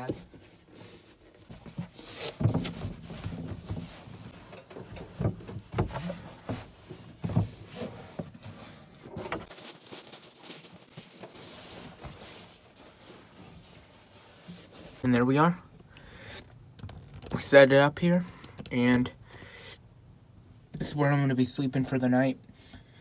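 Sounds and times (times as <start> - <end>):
sleeping bag rustle: 6.1 - 15.1.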